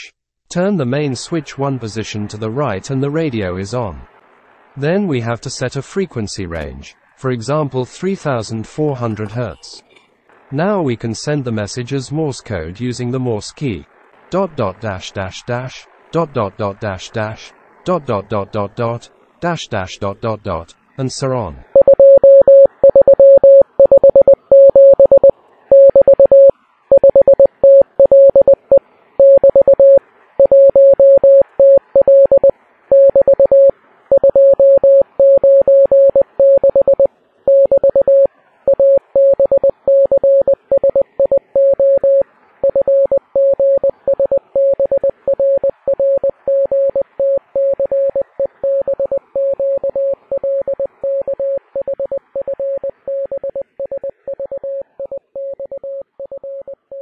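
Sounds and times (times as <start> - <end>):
morse code tone: 21.8 - 57.0.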